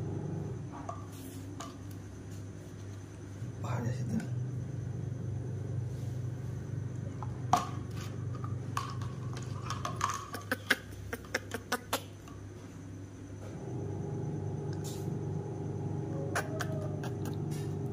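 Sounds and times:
low hum: 3.3 - 9.8, 13.4 - 17.9.

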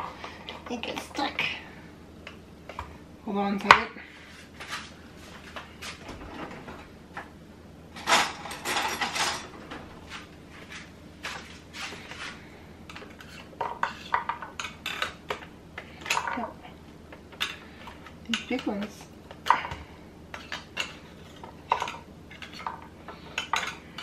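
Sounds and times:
rattling clatter: 8.0 - 10.0.

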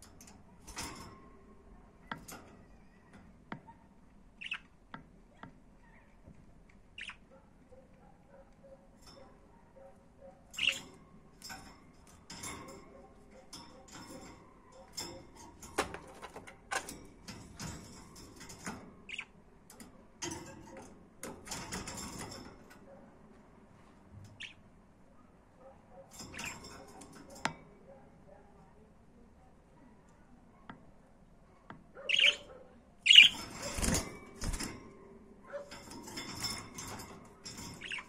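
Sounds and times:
budgerigars chattering: 32.1 - 32.4.

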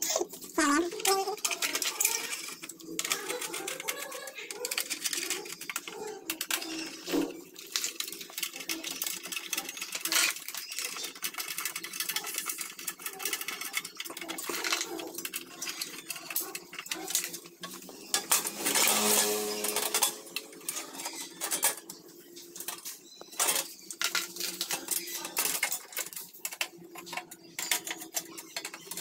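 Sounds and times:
metal cover scraping: 14.3 - 22.0.

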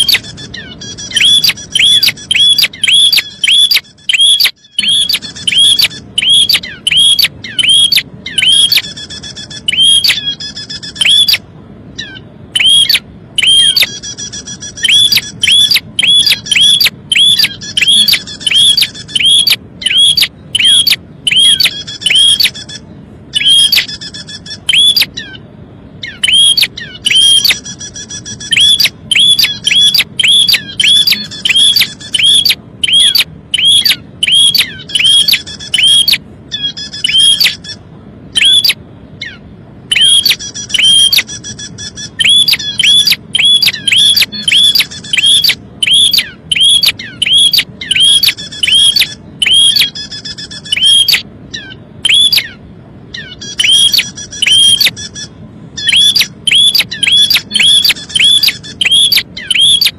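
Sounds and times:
bird downward-sweeping calls: 0.0 - 25.4, 26.0 - 59.9
nestling begging calls: 0.0 - 25.4, 26.0 - 59.9.

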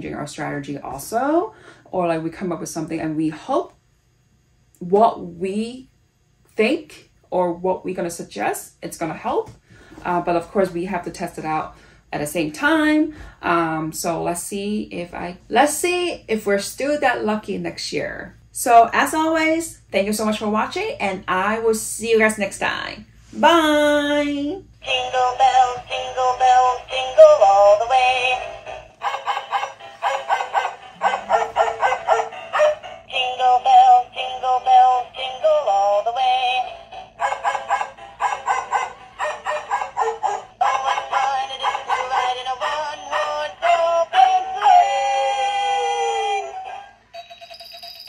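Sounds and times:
toy playing recorded song with singing: 24.8 - 48.0.

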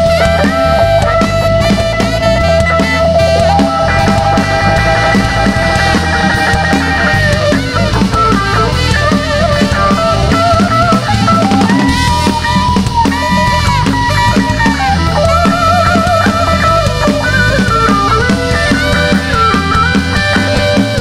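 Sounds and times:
electric bass: 0.0 - 21.0
electric guitar: 0.0 - 21.0
rock drum kit: 0.0 - 21.0
tenor saxophone solo: 0.0 - 21.0.

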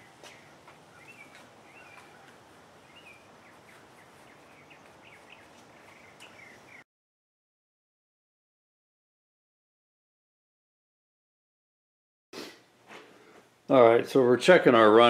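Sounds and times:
small birds chirping: 0.0 - 6.8.

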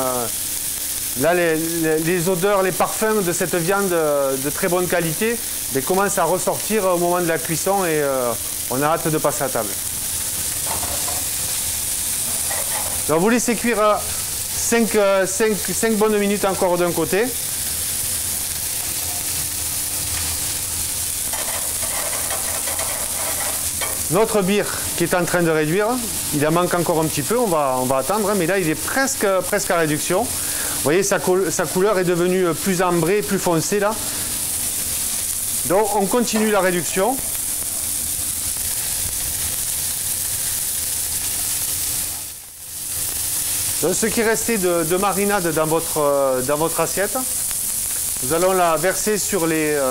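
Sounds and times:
meat sizzling in a frying pan: 0.0 - 49.9.

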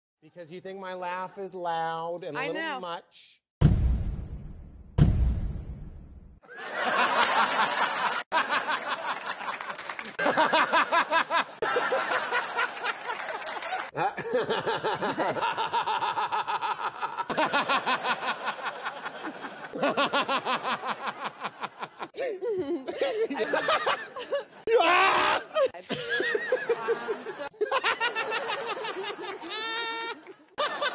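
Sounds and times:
man laughing hard: 14.0 - 26.9.

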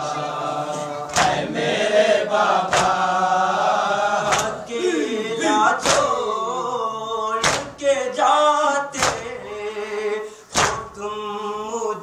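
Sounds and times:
men chanting: 0.0 - 12.0
hands slapping chests: 1.1 - 1.4, 2.7 - 3.0, 4.2 - 4.6, 5.8 - 6.2, 7.4 - 7.8, 9.0 - 9.3, 10.5 - 10.9.

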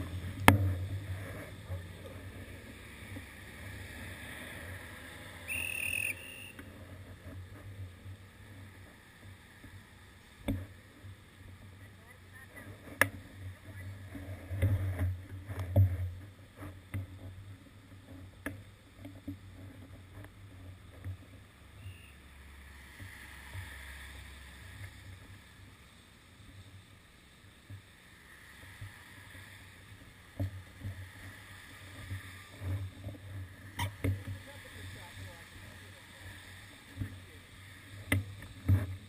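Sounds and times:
low hum with faint hiss: 0.0 - 39.0
muffled traffic rumble: 0.0 - 39.0.

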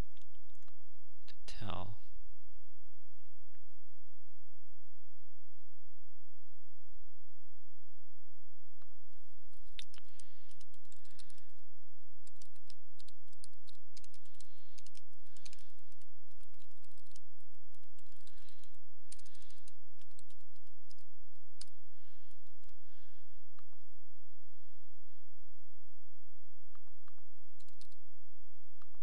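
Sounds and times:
typing on a computer keyboard: 9.8 - 11.5, 12.2 - 21.8, 27.6 - 28.0.

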